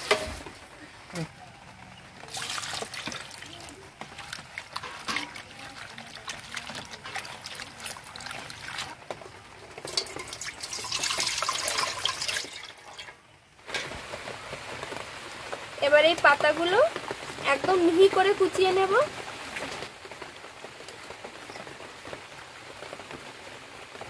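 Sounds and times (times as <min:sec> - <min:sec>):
leaves swished in water: 0:02.2 - 0:13.0
water poured into a pot: 0:02.2 - 0:14.3.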